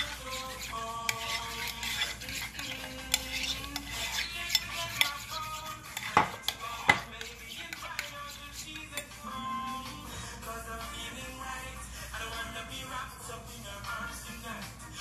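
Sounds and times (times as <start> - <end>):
spoon clinking against bowl: 0.0 - 9.1
metal spoon stirring sauce: 0.0 - 9.7.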